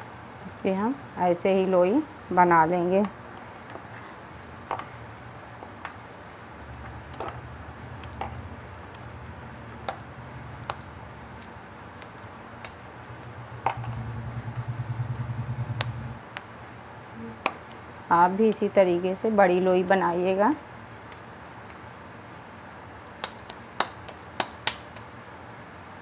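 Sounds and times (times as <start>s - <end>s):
low hum: 2.8s - 17.4s.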